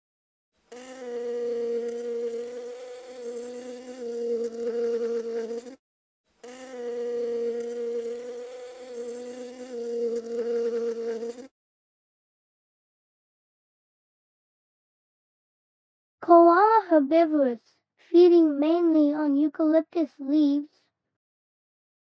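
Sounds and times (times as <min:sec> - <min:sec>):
honeybees buzzing: 0:00.7 - 0:05.8, 0:06.4 - 0:11.5.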